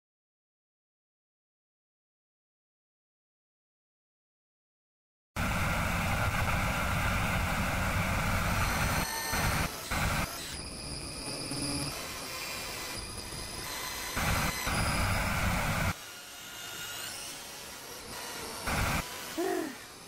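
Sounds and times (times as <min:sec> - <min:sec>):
harsh static noise: 0:05.4 - 0:12.0, 0:13.3 - 0:15.9, 0:18.6 - 0:19.5.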